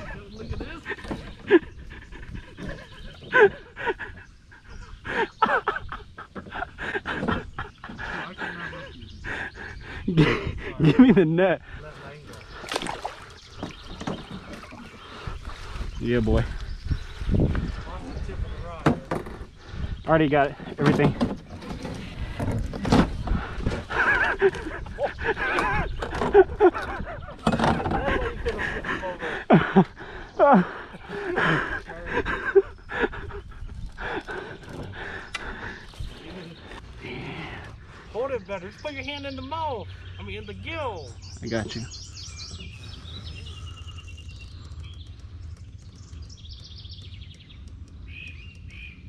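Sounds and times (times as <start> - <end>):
songbirds chirping: 0.0 - 49.0
gear knocking against canoe: 0.4 - 4.2, 5.1 - 8.6, 12.3 - 16.7, 18.8 - 30.2, 31.0 - 36.8, 42.4 - 49.0
bird trill: 38.5 - 49.0.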